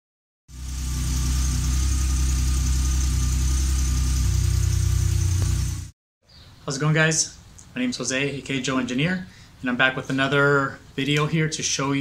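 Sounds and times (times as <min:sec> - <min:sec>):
car engine idling: 0:00.5 - 0:05.9.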